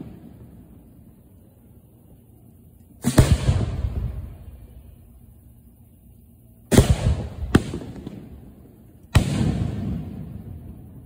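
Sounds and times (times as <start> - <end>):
firework booms: 0.0 - 1.0, 3.0 - 4.9, 6.7 - 11.0
rumble of fireworks: 0.0 - 11.0.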